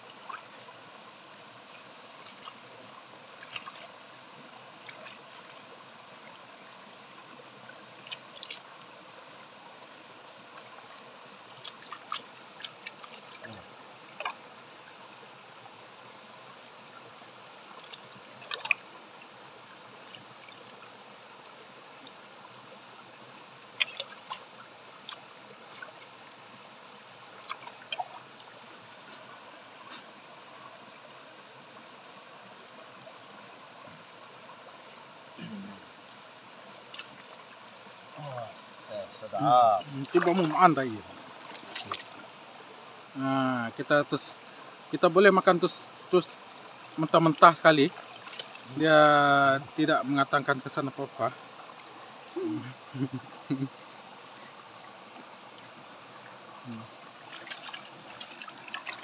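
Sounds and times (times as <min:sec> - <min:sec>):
stream trickling over stones: 0:00.0 - 0:59.0
short water splashes: 0:39.8 - 0:42.3, 0:47.3 - 0:48.8, 0:57.2 - 0:59.0.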